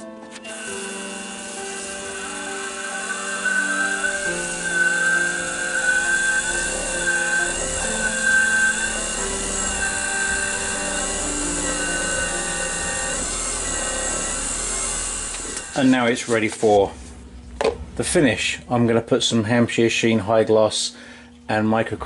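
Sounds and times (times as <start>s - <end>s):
wood lathe whine: 0.4s - 16.7s
cloth rubbing spinning bowl: 0.5s - 17.3s.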